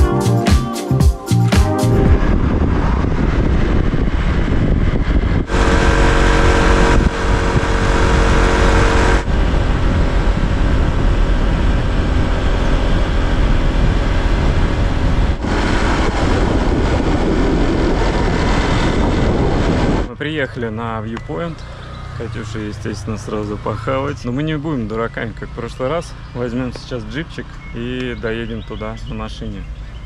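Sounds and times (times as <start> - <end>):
wind buffeting microphone: 2.0 - 20.1
scooter engine and road noise: 2.0 - 30.0.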